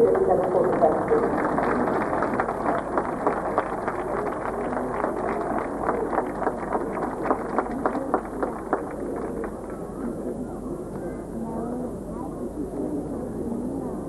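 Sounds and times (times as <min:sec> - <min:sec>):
crowd clapping: 0:00.0 - 0:10.4
murmur of crowd chatter: 0:00.0 - 0:14.0.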